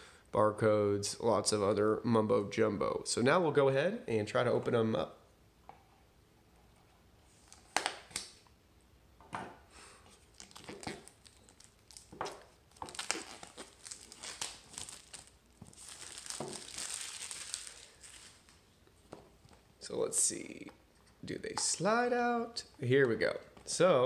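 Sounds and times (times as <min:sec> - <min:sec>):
plastic wrap crinkling and tearing: 0:10.1 - 0:18.7.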